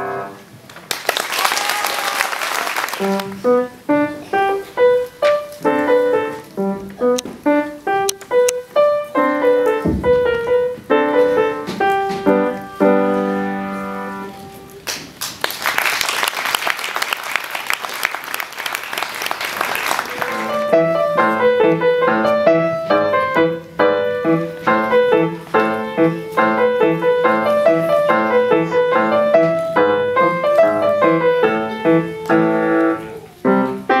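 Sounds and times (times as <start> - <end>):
solo grand piano: 0.0 - 0.6, 3.0 - 14.9, 19.9 - 34.0
audience applause: 0.7 - 3.4, 14.8 - 21.0.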